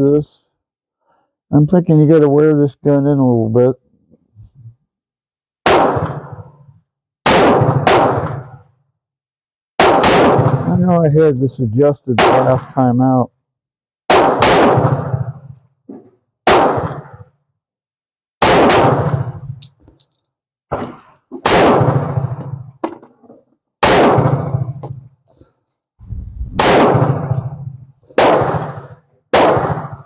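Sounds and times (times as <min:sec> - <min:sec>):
pistol shots with ringing tail: 0:05.6 - 0:08.7, 0:09.8 - 0:11.0, 0:12.2 - 0:12.7, 0:14.1 - 0:15.6, 0:16.4 - 0:17.3, 0:18.4 - 0:19.8, 0:20.7 - 0:22.8, 0:23.8 - 0:25.0, 0:26.6 - 0:30.0
quieter gunshot reports: 0:05.6 - 0:08.7, 0:09.8 - 0:12.9, 0:14.1 - 0:15.6, 0:16.4 - 0:17.4, 0:18.4 - 0:19.6, 0:20.7 - 0:22.8, 0:23.8 - 0:25.0, 0:26.0 - 0:30.0.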